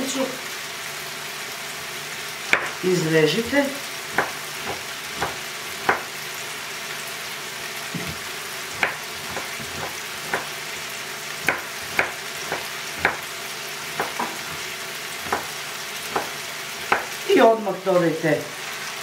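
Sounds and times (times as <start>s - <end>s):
vegetables sizzling in frying pan: 0.0s - 19.0s
knife knocking on cutting board: 2.5s - 2.8s, 4.1s - 6.1s, 8.0s - 8.2s, 8.8s - 10.6s, 11.4s - 13.3s, 13.9s - 14.6s, 15.2s - 17.2s.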